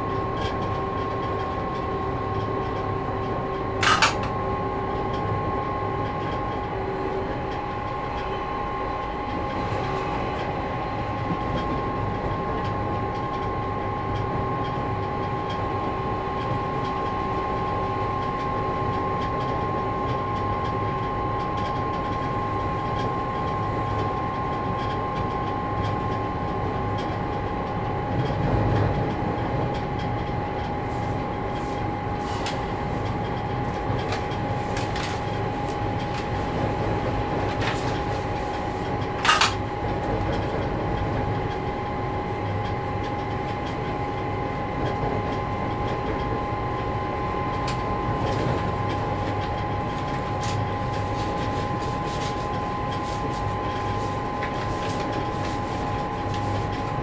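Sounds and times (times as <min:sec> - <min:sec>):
diesel engine drone: 0:00.0 - 0:18.0.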